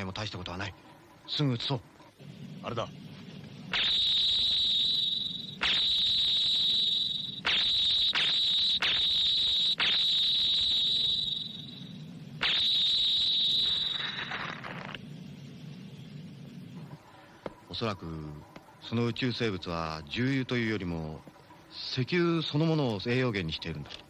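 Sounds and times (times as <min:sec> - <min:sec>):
ray gun blasts: 0:03.7 - 0:11.6, 0:12.4 - 0:14.8.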